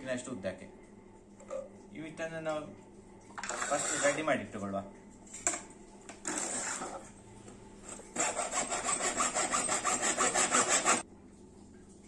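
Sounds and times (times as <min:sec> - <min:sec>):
hacksaw cutting plastic pipe: 0:03.4 - 0:04.2, 0:06.2 - 0:07.0, 0:07.9 - 0:11.0.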